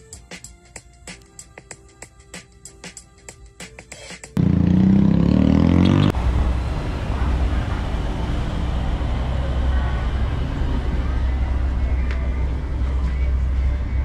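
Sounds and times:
music with ticking beat: 0:00.0 - 0:04.4
engine and traffic rumble: 0:04.4 - 0:14.0
engine revving: 0:04.4 - 0:14.0.

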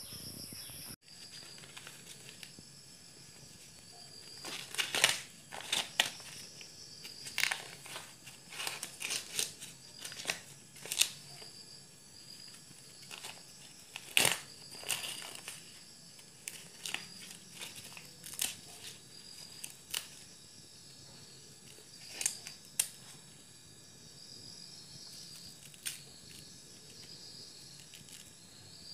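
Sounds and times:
corn husks rustling and ripping: 0:01.1 - 0:02.6, 0:03.4 - 0:11.6, 0:12.4 - 0:20.4, 0:21.6 - 0:23.2, 0:25.2 - 0:28.4.

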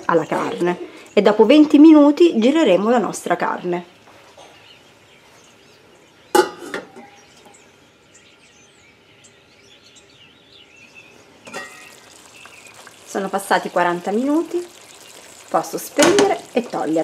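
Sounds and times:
metal lid clanking on pot: 0:06.4 - 0:07.2, 0:11.5 - 0:12.0.

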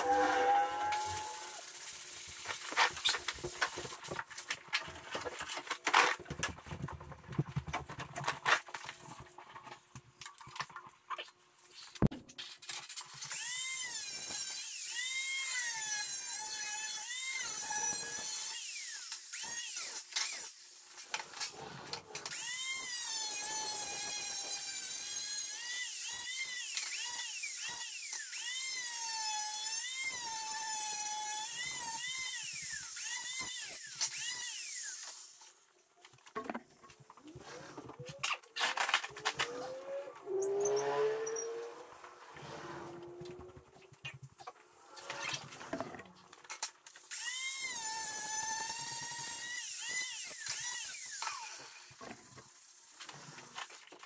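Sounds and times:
angle grinder cutting metal: 0:00.0 - 0:03.2, 0:22.2 - 0:35.6, 0:46.6 - 0:52.8.

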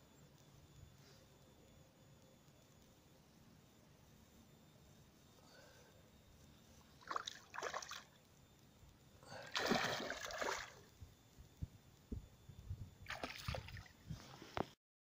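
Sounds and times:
fish splashing in water: 0:07.0 - 0:08.1, 0:09.4 - 0:10.8, 0:13.1 - 0:13.9.

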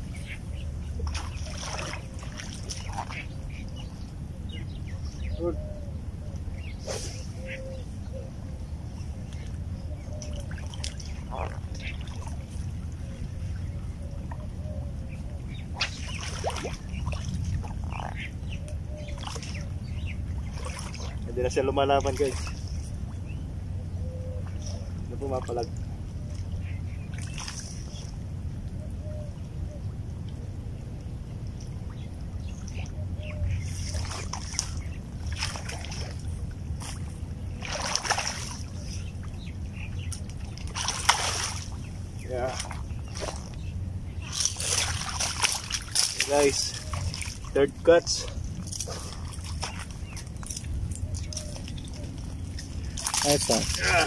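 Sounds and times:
steady low rumble: 0:00.0 - 0:54.0
fish splashing in water: 0:00.9 - 0:03.6, 0:15.6 - 0:21.3, 0:25.6 - 0:28.2, 0:31.6 - 0:54.0.

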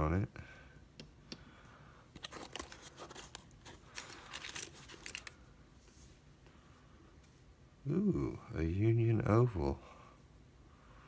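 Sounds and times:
metal locks and keys clinking: 0:03.9 - 0:05.4.

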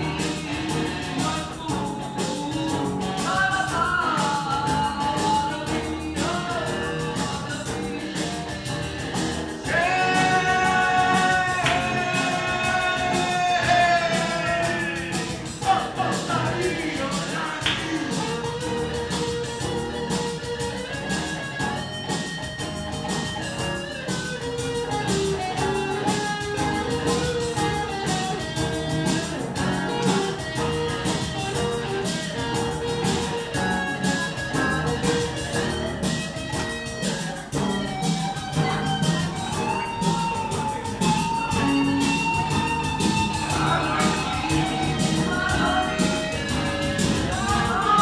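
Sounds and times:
man singing: 0:00.0 - 0:19.2, 0:39.8 - 0:48.0
electric bass: 0:00.0 - 0:48.0
electric guitars: 0:00.0 - 0:48.0.

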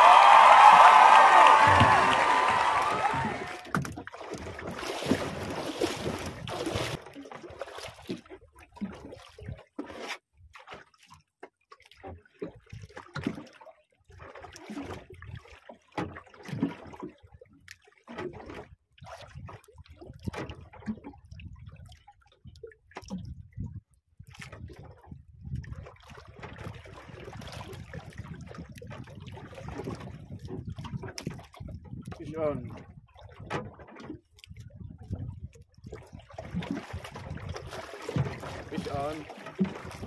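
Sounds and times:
rush of water or wind: 0:00.0 - 0:07.1, 0:23.0 - 0:40.0
water lapping against boat hull: 0:00.0 - 0:40.0.

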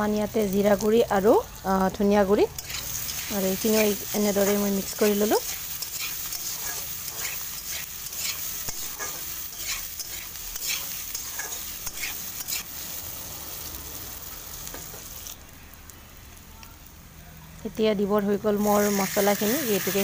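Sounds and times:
potatoes sizzling in oil: 0:00.0 - 0:20.0
metal spatula scraping a pan: 0:02.5 - 0:12.8.

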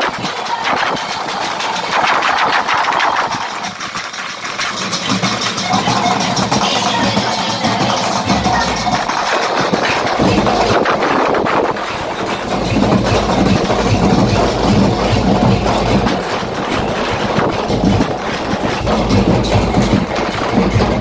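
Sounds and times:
loud dense noise: 0:00.0 - 0:21.0
heavy engine rumbling: 0:09.8 - 0:21.0.

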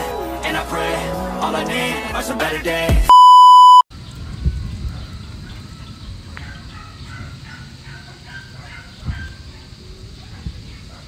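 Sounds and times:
electronic beep: 0:03.1 - 0:03.8.

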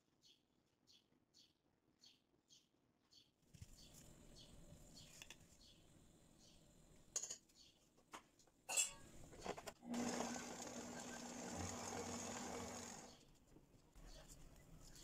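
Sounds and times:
stand mixer humming: 0:09.8 - 0:13.1.

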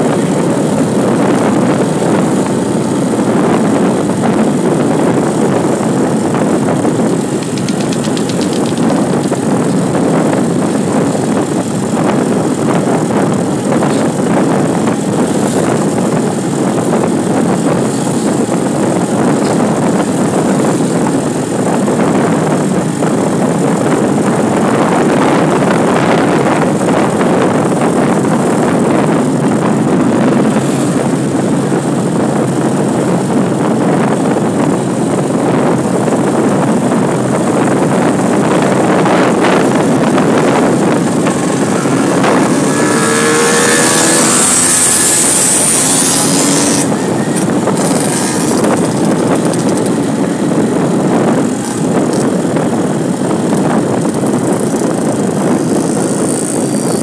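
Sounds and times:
vehicle road noise: 0:00.0 - 0:57.0
engine revving: 0:28.8 - 0:31.8, 0:36.4 - 0:52.3.

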